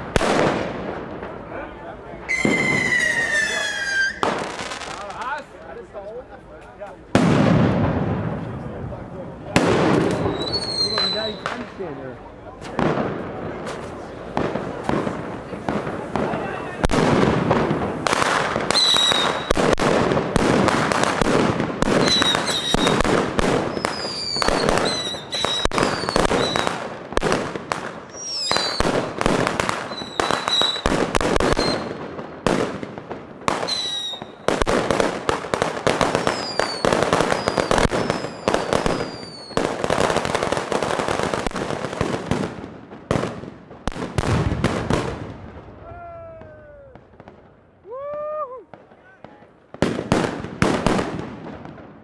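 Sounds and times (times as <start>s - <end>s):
firework crackling: 0.0s - 52.0s
firework whistles: 2.3s - 4.7s, 10.0s - 11.7s, 18.6s - 19.7s, 21.9s - 26.8s, 28.1s - 29.0s, 29.8s - 32.0s, 33.6s - 34.6s, 36.0s - 39.6s.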